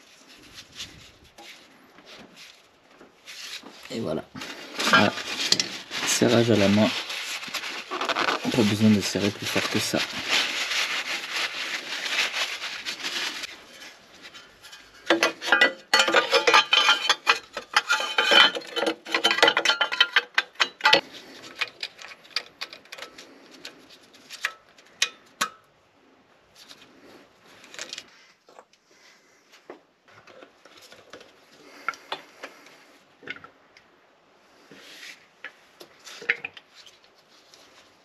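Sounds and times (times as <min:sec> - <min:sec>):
paper towel rubbing and crinkling: 0:00.0 - 0:14.4.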